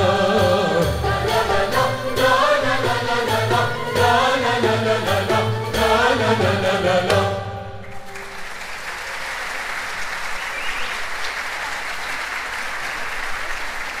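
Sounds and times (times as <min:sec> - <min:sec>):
choir singing: 0:00.0 - 0:07.9
audience applause: 0:08.0 - 0:14.0.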